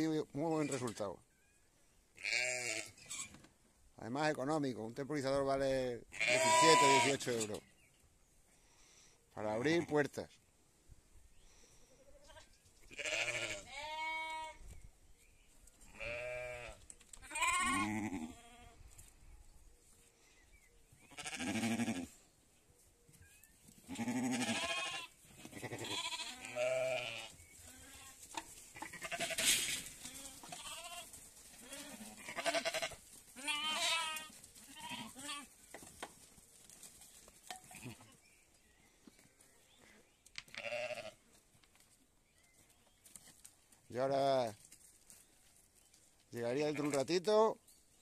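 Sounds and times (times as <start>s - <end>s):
sheep and lambs bleating: 2.2s - 3.3s, 6.1s - 7.4s, 12.1s - 14.6s, 15.8s - 18.8s, 21.0s - 22.2s, 23.8s - 35.6s, 37.7s - 38.2s, 40.5s - 41.3s.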